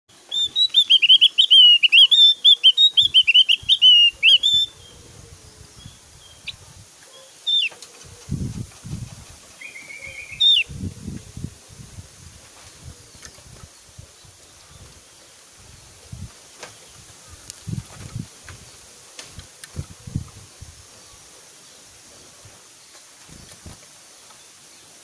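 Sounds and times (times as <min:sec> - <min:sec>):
bird rapid whistled notes: 0:00.3 - 0:04.9, 0:09.6 - 0:10.7.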